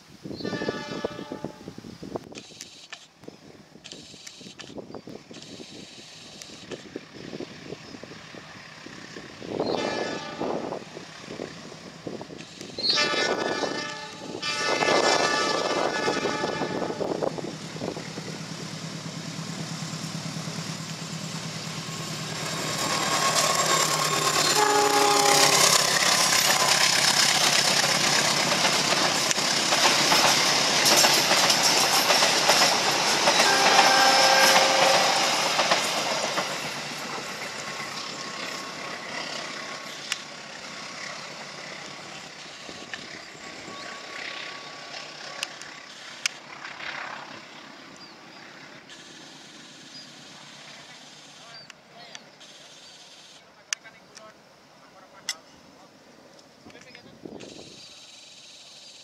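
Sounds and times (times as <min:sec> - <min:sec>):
train horn blasts: 0:00.3 - 0:01.8, 0:09.6 - 0:10.8, 0:12.8 - 0:17.3, 0:23.2 - 0:26.8, 0:33.2 - 0:35.4
locomotive engine running: 0:15.3 - 0:51.4
wheels clattering on rails: 0:18.6 - 0:33.9, 0:34.5 - 0:40.4.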